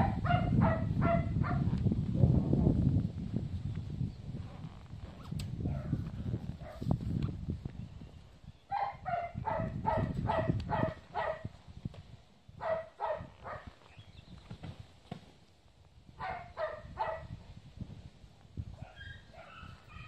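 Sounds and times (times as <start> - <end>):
dog barking: 0.0 - 1.7, 5.7 - 6.0, 6.6 - 6.8, 8.7 - 11.5, 12.6 - 13.7, 16.2 - 17.3
wind rumble on microphone: 0.0 - 20.0.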